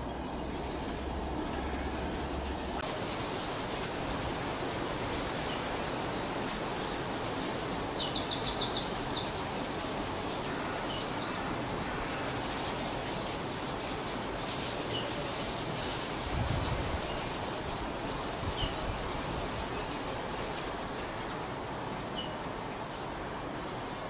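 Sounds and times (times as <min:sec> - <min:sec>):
songbird trill: 0:00.0 - 0:02.8, 0:04.4 - 0:12.3, 0:18.1 - 0:21.0, 0:21.7 - 0:22.4
low background noise: 0:00.0 - 0:24.0
songbird chirping: 0:04.1 - 0:12.4, 0:17.0 - 0:24.0.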